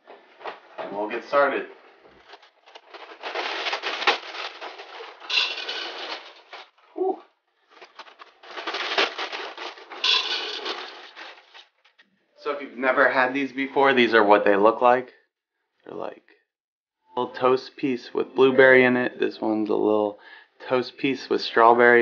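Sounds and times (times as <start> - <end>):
cereal pouring into glass vase: 5.2 - 6.2, 9.8 - 11.2.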